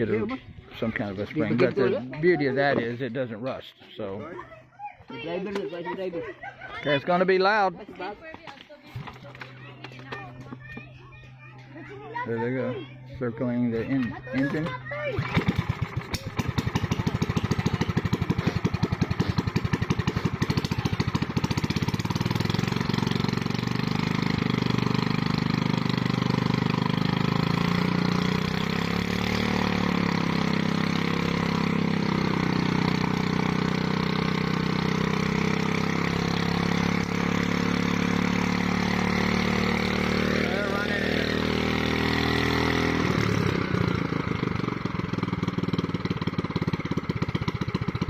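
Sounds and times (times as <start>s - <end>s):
small gasoline engine running: 12.2s - 48.0s.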